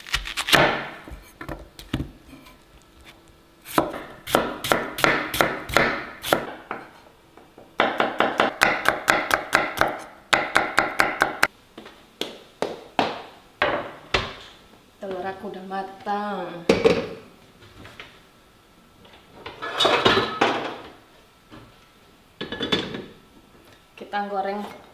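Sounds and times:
knife chopping on cutting board: 0:03.7 - 0:06.8, 0:07.8 - 0:11.5.

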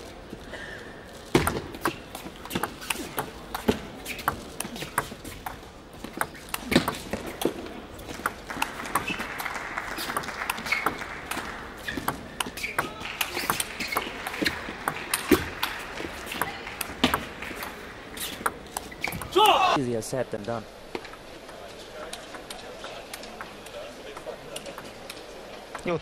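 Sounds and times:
table tennis ball clicks: 0:01.4 - 0:19.4.

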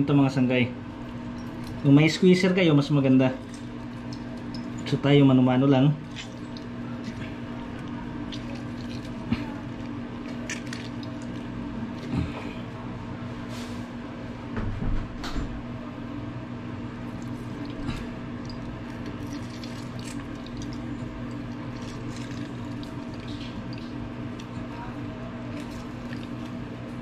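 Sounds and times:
steady low hum: 0:00.0 - 0:27.0
juice dripping: 0:00.8 - 0:13.2, 0:16.7 - 0:27.0
fruit squishing: 0:06.0 - 0:12.7, 0:17.0 - 0:24.8, 0:25.4 - 0:27.0.

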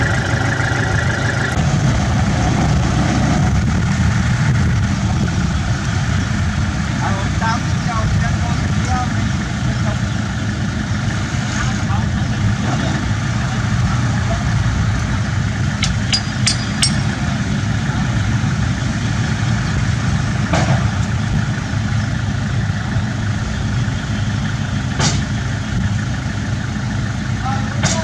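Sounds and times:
bulldozer diesel engine running: 0:00.0 - 0:28.0
sharp metallic clicks: 0:15.8 - 0:17.2.

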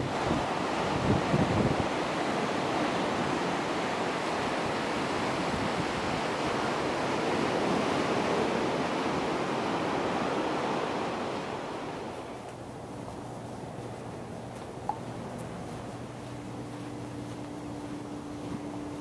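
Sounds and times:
surf breaking on beach: 0:00.0 - 0:12.4.

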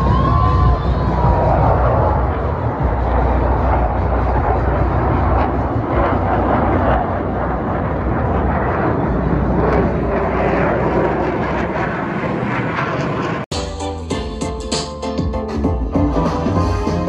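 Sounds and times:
music: 0:00.0 - 0:06.7, 0:13.5 - 0:17.0
jet flying past overhead: 0:00.0 - 0:13.5.

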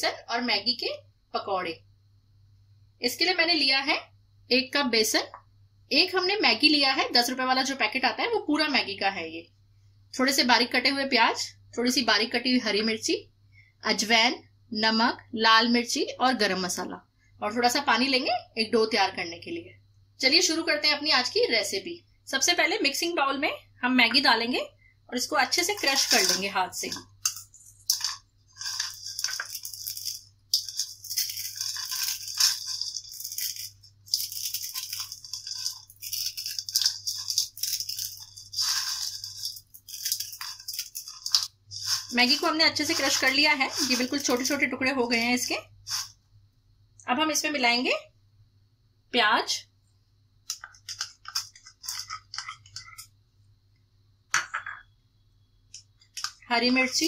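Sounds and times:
dry noodles crushed by hand: 0:25.7 - 0:44.6.

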